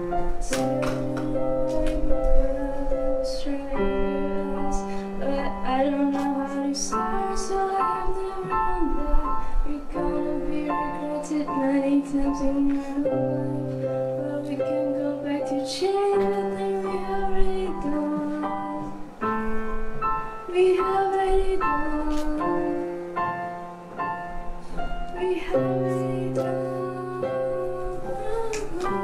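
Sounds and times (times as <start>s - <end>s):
young female voice singing: 0.0s - 19.1s, 20.5s - 23.0s, 25.2s - 29.0s
piano chords: 0.0s - 29.0s.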